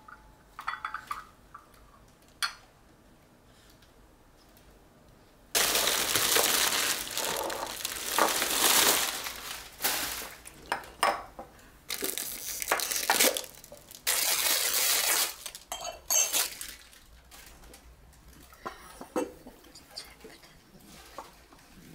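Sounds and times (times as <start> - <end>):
glass clinks: 0.0 - 1.2, 15.7 - 16.4
paper and plastic crinkling: 5.6 - 10.6, 11.9 - 18.5.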